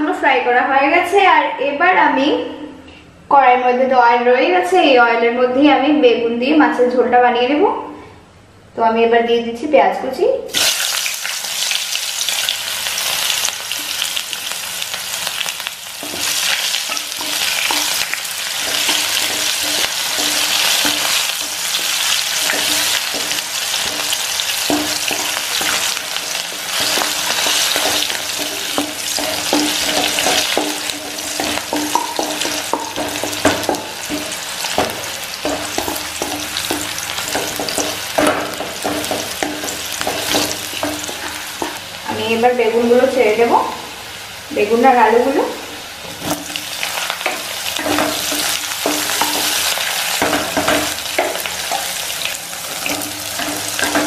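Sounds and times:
onions sizzling in hot oil: 10.5s - 54.0s
spatula scraping pan: 16.0s - 41.9s, 46.1s - 54.0s.

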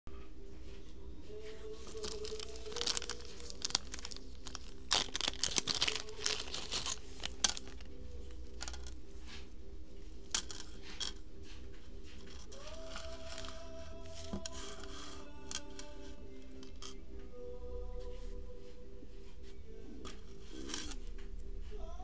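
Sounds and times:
plastic bag crinkling: 1.8s - 11.2s, 12.1s - 17.0s.

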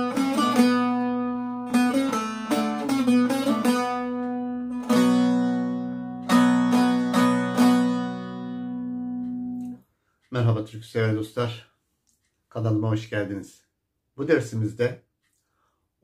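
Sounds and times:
plucked lute played with plectrum: 0.0s - 9.8s.

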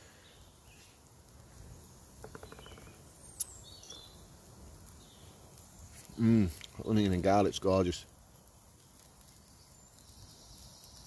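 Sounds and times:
campfire crack: 0.0s - 11.0s
campfire ticking: 1.0s - 11.0s
faint bird chirps: 2.2s - 4.3s.

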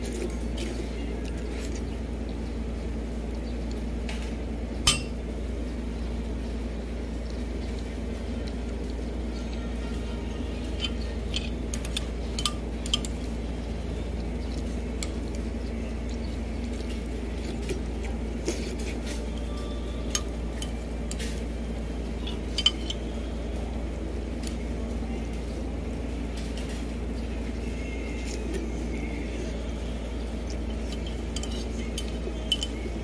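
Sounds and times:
low background hum: 0.0s - 33.0s
cutlery and dishes clinking: 22.3s - 23.0s, 30.9s - 32.8s.

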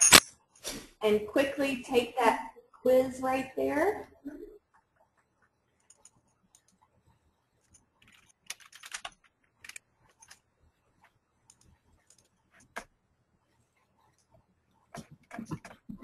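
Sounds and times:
computer keyboard typing: 5.8s - 6.9s, 7.6s - 10.4s, 11.4s - 12.9s.

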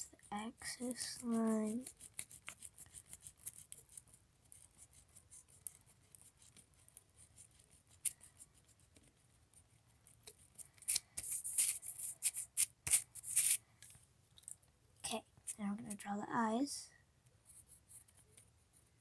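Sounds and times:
eraser rubbing on paper: 0.5s - 3.7s, 10.9s - 13.6s
hand brushing across paper: 11.2s - 13.6s.

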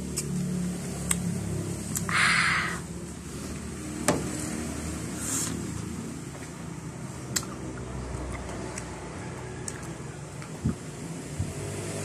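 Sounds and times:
person chewing: 7.2s - 9.0s, 9.6s - 10.9s.

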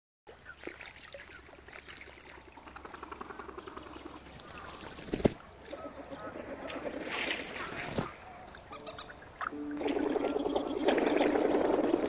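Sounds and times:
trickling water: 0.3s - 5.0s, 5.6s - 12.0s
animal calls: 2.6s - 12.0s.

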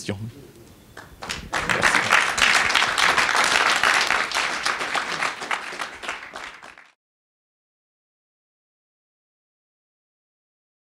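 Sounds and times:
audience applauding: 1.0s - 7.0s.

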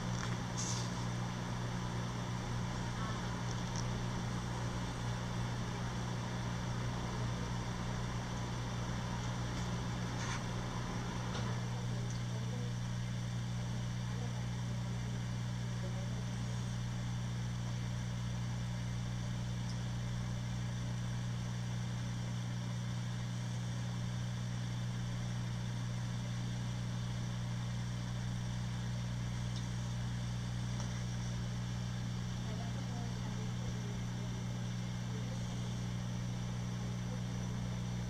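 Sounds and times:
constant hiss: 0.0s - 12.5s
aquarium equipment humming: 0.0s - 38.0s.

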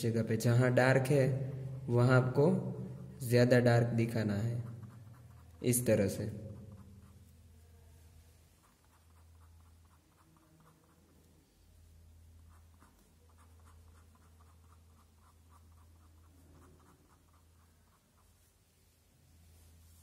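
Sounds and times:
low steady hum: 0.0s - 20.0s
pen scratching on paper: 4.5s - 7.4s, 8.6s - 11.4s, 12.3s - 18.7s.

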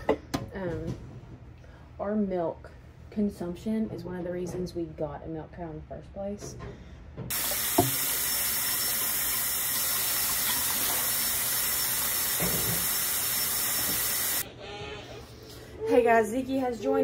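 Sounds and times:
tap running into sink: 7.3s - 14.3s.

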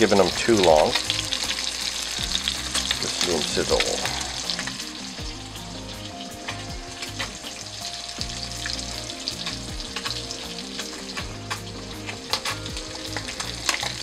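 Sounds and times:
fish sizzling in butter: 0.0s - 14.0s.

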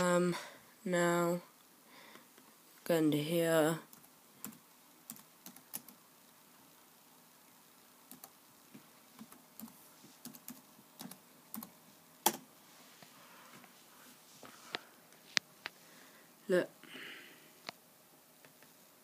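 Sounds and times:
laptop keyboard typing: 3.9s - 6.0s, 8.1s - 8.4s, 9.2s - 12.5s.

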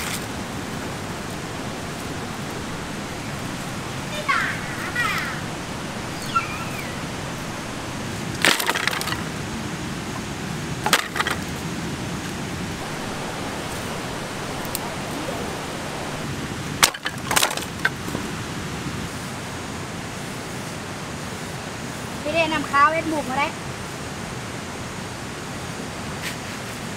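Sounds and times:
running water: 0.0s - 18.7s
dry branches snapping: 8.2s - 9.3s.

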